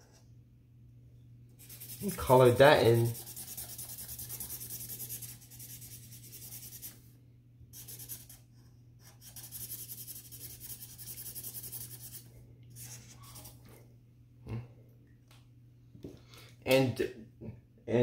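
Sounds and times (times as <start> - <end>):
felt-tip marker scribbling on paper: 1.6 - 7.0, 7.8 - 8.4, 9.0 - 12.2.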